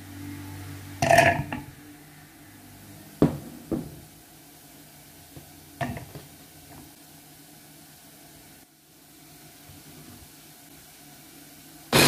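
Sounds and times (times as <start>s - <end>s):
knocks on tabletop: 3.2s - 4.0s.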